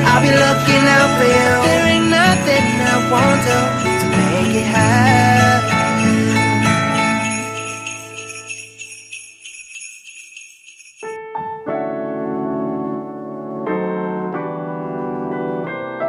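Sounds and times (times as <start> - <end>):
held chords: 0.0 - 11.1
bell-like notes ticking: 2.2 - 11.1.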